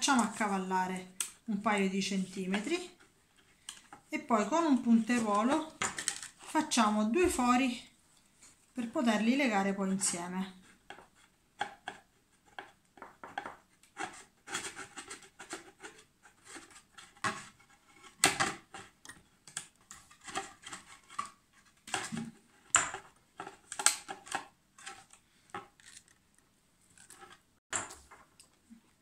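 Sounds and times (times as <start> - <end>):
plastic clicking and crackling: 18.2 - 26.2
plastic snapping: 23.7 - 24.5.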